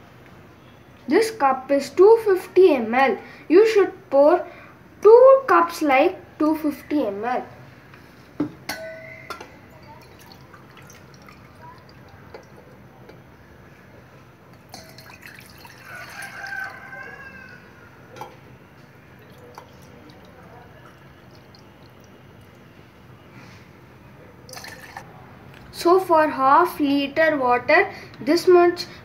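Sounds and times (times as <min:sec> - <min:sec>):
steel vessels clinking: 0:08.7 - 0:12.7, 0:14.6 - 0:16.2
water pouring into metal pot: 0:09.8 - 0:12.6, 0:14.6 - 0:17.1, 0:19.1 - 0:22.6, 0:24.5 - 0:25.0.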